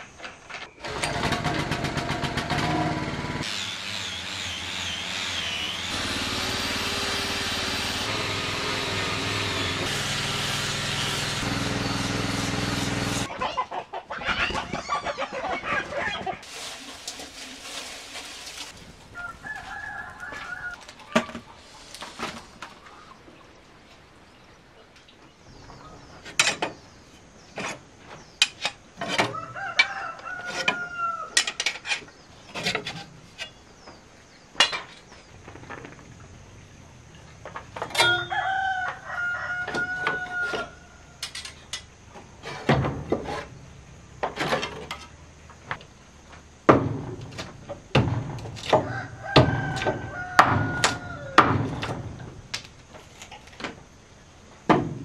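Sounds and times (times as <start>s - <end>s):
rooster crowing: 19.1s - 20.9s, 29.3s - 31.4s, 38.1s - 41.2s, 48.8s - 51.6s.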